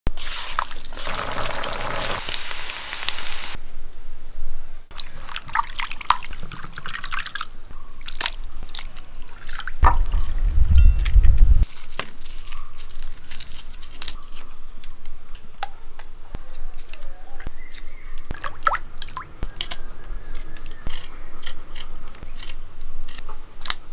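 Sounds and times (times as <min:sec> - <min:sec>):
hands squelching through wet meat: 0:04.9 - 0:10.4
water dripping and splashing: 0:04.9 - 0:10.6.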